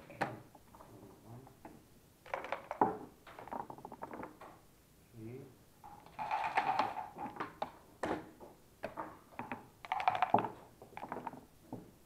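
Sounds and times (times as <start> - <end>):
checkers clacking on board: 8.9 - 11.4.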